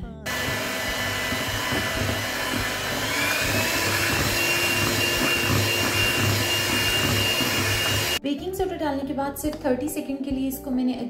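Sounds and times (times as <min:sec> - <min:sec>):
electric hand mixer whisking batter: 0:00.3 - 0:08.2.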